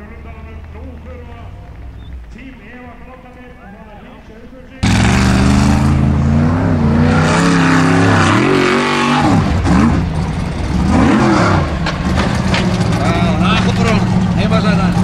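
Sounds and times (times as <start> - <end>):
buggy engine revving hard: 4.8 - 15.0.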